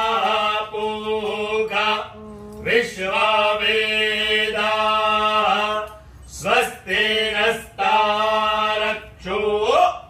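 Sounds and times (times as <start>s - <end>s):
man chanting: 0.0s - 10.0s
steady low hum: 0.0s - 10.0s.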